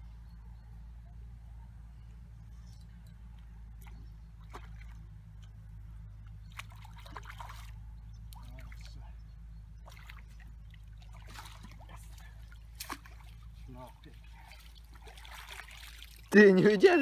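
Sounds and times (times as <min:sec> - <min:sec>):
water splashing: 0:03.7 - 0:05.6, 0:06.3 - 0:09.0, 0:09.8 - 0:17.0.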